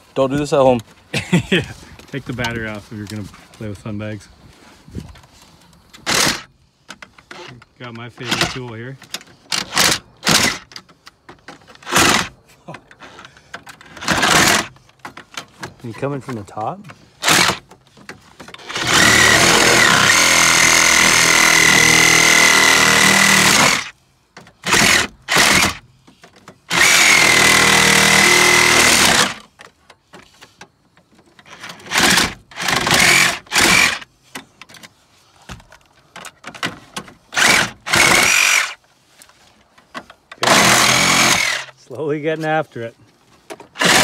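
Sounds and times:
reciprocating saw cutting: 0:13.9 - 0:14.8, 0:17.2 - 0:17.7, 0:18.6 - 0:24.0, 0:24.6 - 0:25.8, 0:26.7 - 0:29.5, 0:31.5 - 0:34.1, 0:37.3 - 0:38.8, 0:40.4 - 0:41.8, 0:43.8 - 0:44.0.

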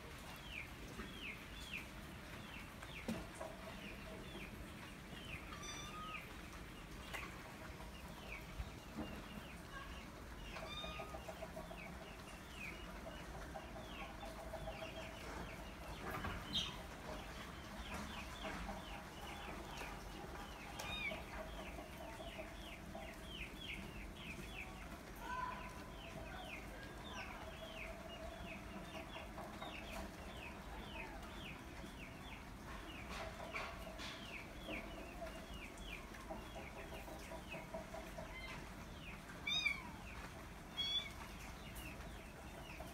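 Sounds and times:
chicks peeping: 0:00.1 - 0:42.9
hen clucking: 0:00.4 - 0:24.9, 0:25.5 - 0:42.9.

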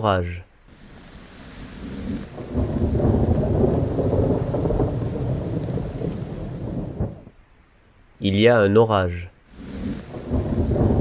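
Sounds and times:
rain: 0:00.0 - 0:11.0
rolling thunder: 0:00.8 - 0:07.4, 0:09.6 - 0:11.0.

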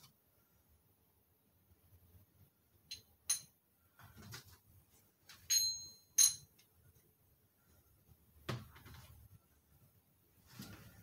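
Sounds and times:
soft handling noise: 0:03.8 - 0:05.6, 0:06.5 - 0:11.0
metal rocker arms clinking: 0:05.5 - 0:06.6.

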